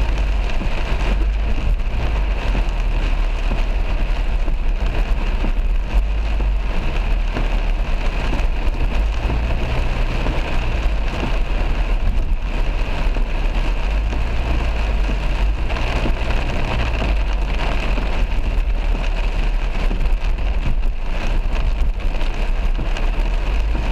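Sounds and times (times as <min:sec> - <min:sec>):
car rumbling on wet road: 0:00.0 - 0:23.9
heavy rain on car roof: 0:00.0 - 0:23.9.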